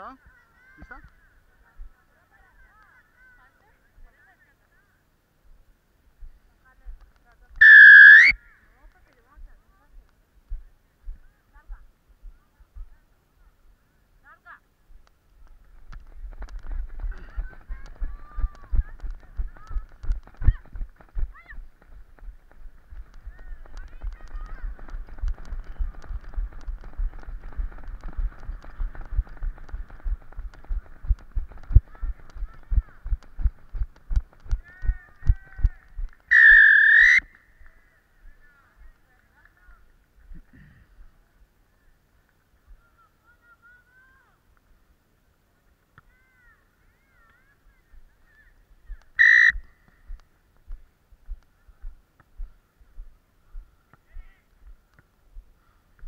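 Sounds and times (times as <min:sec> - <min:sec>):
referee's whistle blast: 0:07.6 - 0:08.4, 0:36.3 - 0:37.3, 0:49.2 - 0:49.6
distant shouts: 0:07.6 - 0:08.8, 0:34.6 - 0:38.7, 0:46.0 - 0:50.1
running footsteps on grass: 0:14.3 - 0:36.3, 0:46.1 - 0:56.0.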